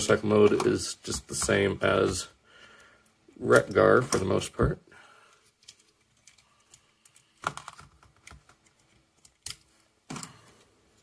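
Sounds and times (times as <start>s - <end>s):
plastic toy parts clicking: 5.6s - 10.3s.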